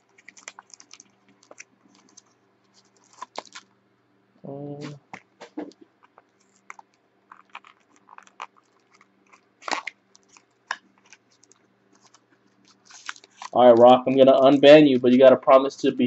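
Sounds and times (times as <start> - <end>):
cardboard box crackling open: 0.0 - 3.6, 6.1 - 13.6.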